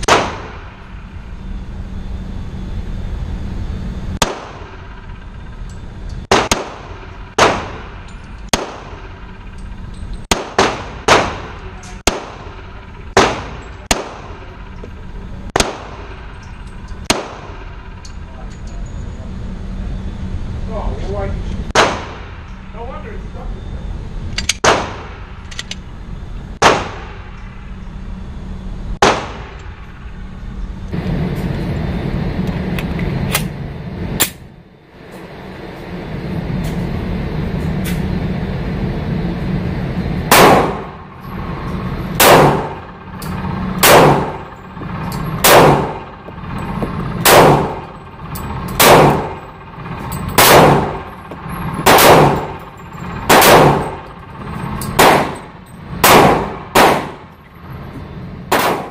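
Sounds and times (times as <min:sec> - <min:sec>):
steady low hum: 0:00.0 - 0:58.9
pistol shots indoors: 0:06.3 - 0:09.2, 0:10.3 - 0:14.4, 0:24.6 - 0:25.3, 0:40.3 - 0:41.0, 0:42.2 - 0:42.8, 0:43.8 - 0:44.5, 0:45.4 - 0:46.0, 0:50.4 - 0:51.0, 0:51.8 - 0:52.6, 0:53.3 - 0:54.0, 0:55.0 - 0:55.4, 0:56.0 - 0:57.3, 0:58.5 - 0:58.9.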